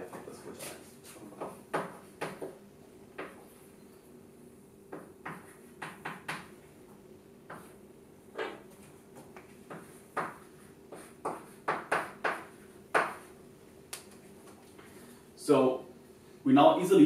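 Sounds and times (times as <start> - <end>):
chalk tapping and scratching: 5.0 - 6.5, 7.4 - 7.8, 8.4 - 13.4.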